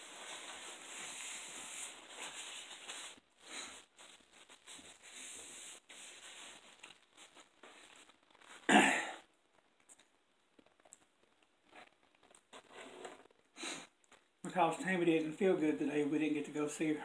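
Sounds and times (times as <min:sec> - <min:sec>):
paper napkin rustling: 0:00.0 - 0:08.7.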